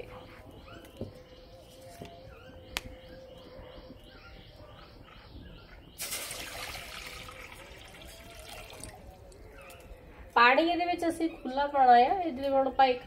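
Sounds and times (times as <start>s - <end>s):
birds chirping: 0.0s - 13.0s
water pouring into metal pot: 6.0s - 9.2s.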